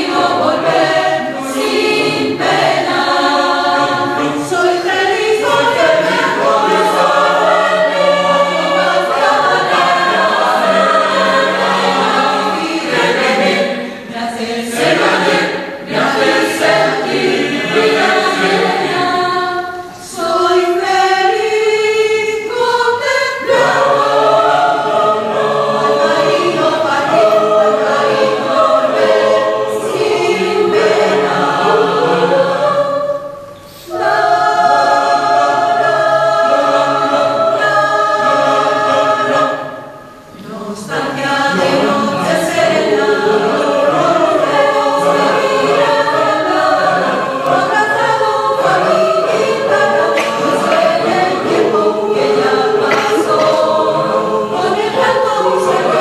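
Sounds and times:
mixed choir singing: 0.0s - 56.0s.

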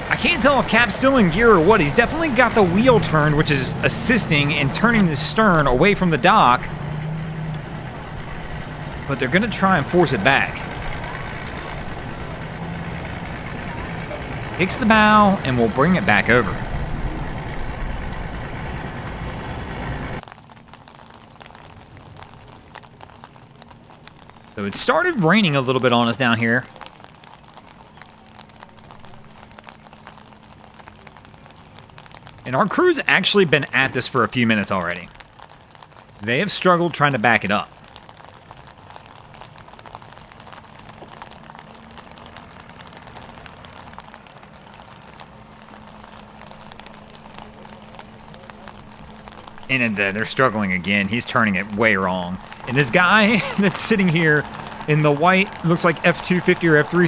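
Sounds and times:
outboard motor idling: 0.0s - 20.2s
light rain ticking: 0.0s - 57.0s
vehicle engine running low: 0.0s - 57.0s.

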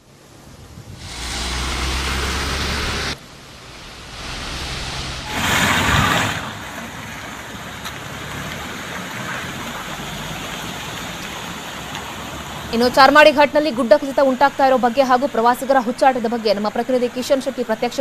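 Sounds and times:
steady outdoor hiss: 0.0s - 18.0s
low rumble: 0.7s - 7.0s
rush of noise: 0.7s - 7.7s.

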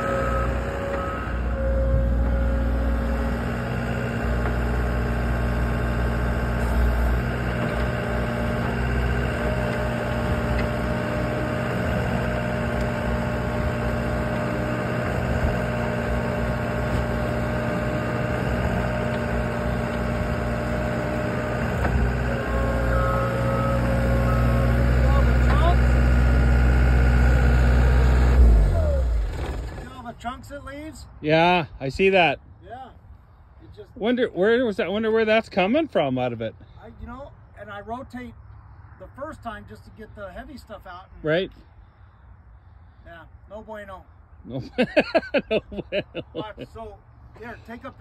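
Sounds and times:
loader diesel engine running: 0.0s - 30.7s.

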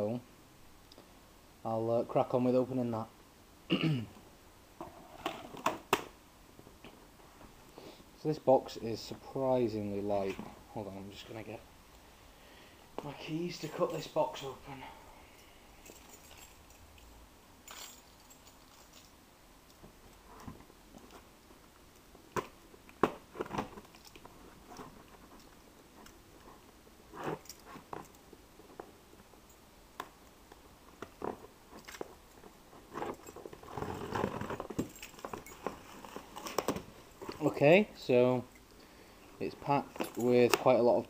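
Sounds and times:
keys jingling: 15.8s - 19.2s.

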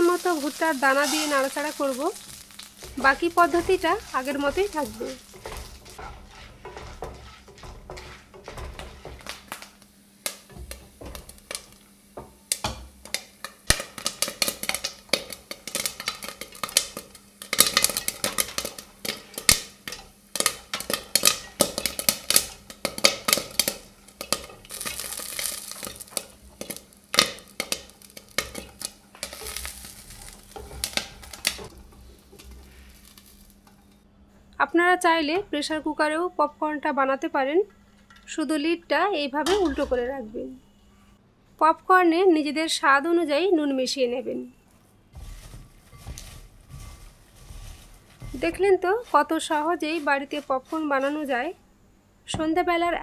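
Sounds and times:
oil sizzling: 0.0s - 34.0s, 45.0s - 53.0s
popcorn popping: 0.0s - 34.0s, 45.2s - 51.6s.

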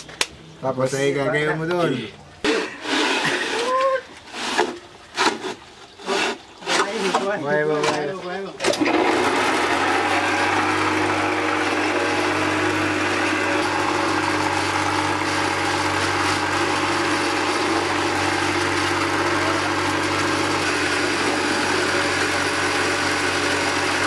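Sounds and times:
concrete being compacted in mold: 2.5s - 24.0s
block making machine humming: 8.7s - 24.0s.

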